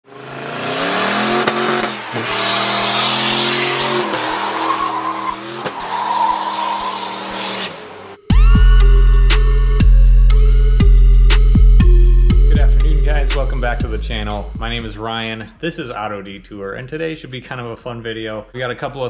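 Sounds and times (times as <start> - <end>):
truck engine revving high: 0.0 - 9.6
tyres squealing on concrete: 1.7 - 8.2
music: 8.2 - 19.0.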